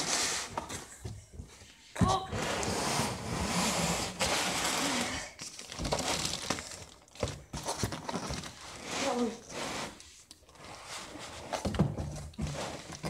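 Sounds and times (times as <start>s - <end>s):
packaging crinkling and rustling: 5.1s - 9.2s.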